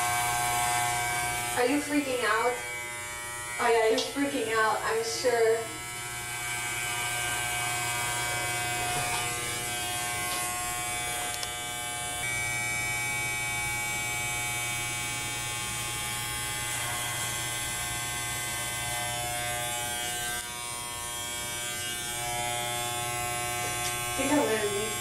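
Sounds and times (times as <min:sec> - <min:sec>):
electric hair clippers buzzing: 0:00.0 - 0:25.0.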